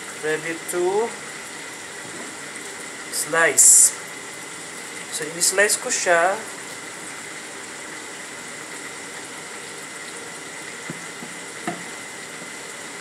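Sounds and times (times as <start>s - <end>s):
faint knocks: 10.9s - 11.9s.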